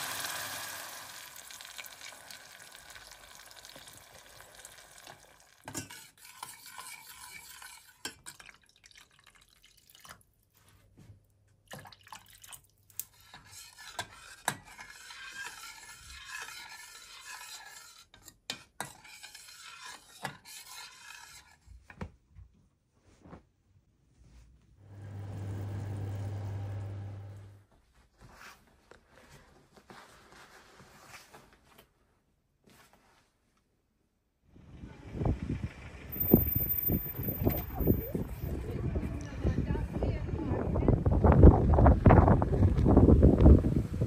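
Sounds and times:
sauce sizzling in a saucepan: 0:00.0 - 0:06.1.

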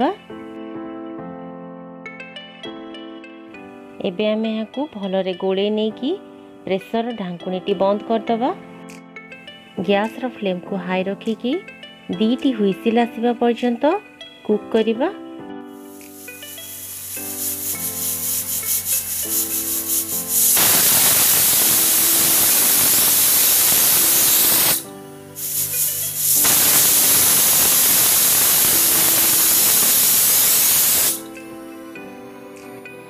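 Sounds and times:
soft background music: 0:00.0 - 0:33.0
pressure cooker whistling: 0:16.2 - 0:31.2.

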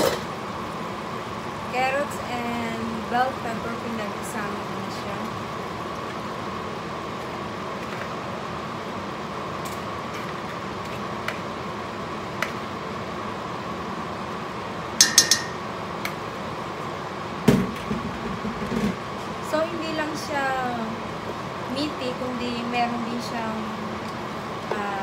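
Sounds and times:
steady background hiss: 0:00.0 - 0:25.0
utensil clinking on metal pot: 0:15.0 - 0:15.6.

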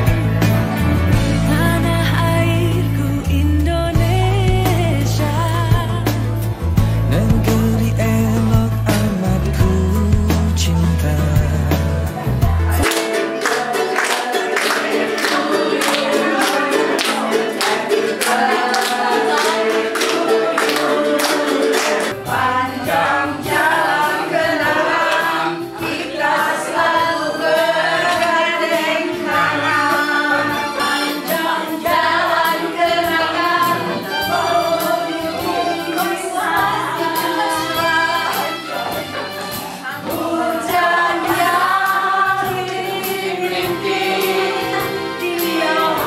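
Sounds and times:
low bass line: 0:00.0 - 0:12.8
group of voices singing: 0:07.1 - 0:46.0.

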